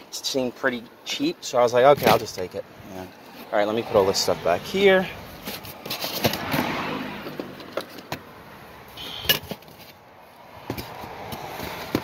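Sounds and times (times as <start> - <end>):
cardboard boxes rustling and scraping: 5.2 - 8.3, 9.4 - 12.0.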